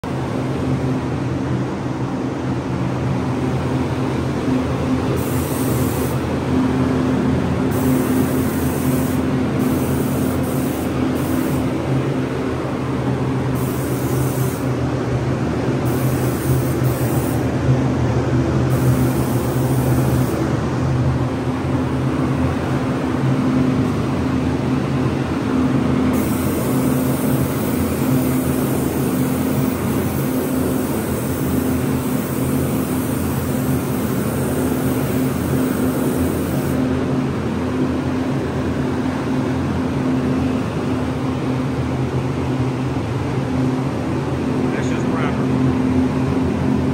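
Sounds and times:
spray equipment humming: 0:05.1 - 0:06.4, 0:07.6 - 0:17.6, 0:18.7 - 0:20.6, 0:26.1 - 0:37.1
spray gun hissing: 0:05.1 - 0:06.4, 0:07.7 - 0:12.0, 0:13.4 - 0:14.8, 0:15.7 - 0:17.5, 0:18.7 - 0:20.4, 0:26.1 - 0:36.9.

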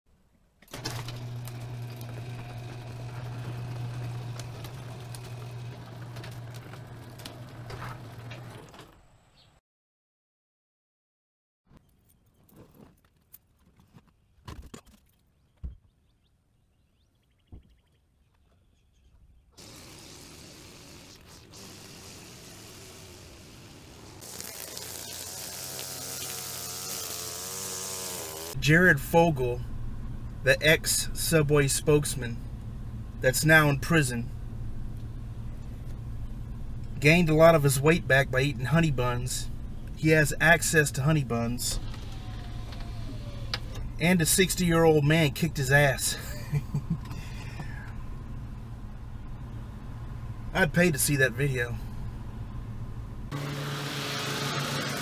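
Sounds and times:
garage door motor hum: 0:00.6 - 0:09.3, 0:19.6 - 0:28.6, 0:41.7 - 0:44.0, 0:53.3 - 0:55.0
door rollers clicking: 0:00.7 - 0:09.0
string trimmer engine idling: 0:19.6 - 0:28.6.

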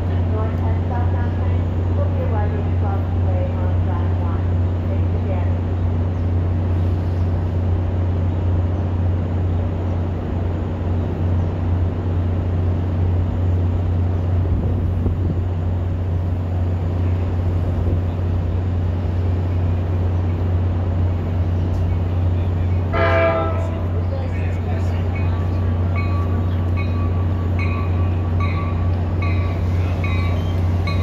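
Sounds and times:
diesel locomotive idling: 0:00.0 - 0:31.0.

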